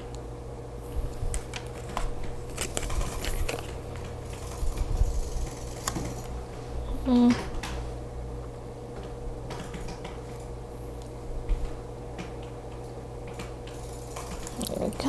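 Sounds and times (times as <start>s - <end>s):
paper and plastic rustling: 1.2s - 4.8s.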